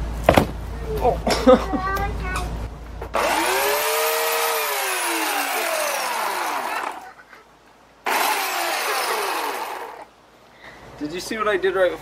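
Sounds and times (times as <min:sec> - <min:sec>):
electric chainsaw motor whine: 0:03.2 - 0:07.0, 0:08.1 - 0:10.1.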